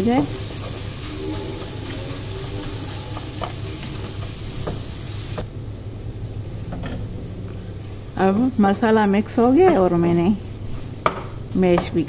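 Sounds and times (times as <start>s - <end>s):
hiss: 0.0s - 5.4s
wooden spoon mashing beans: 0.0s - 5.4s
low hum: 0.0s - 10.7s.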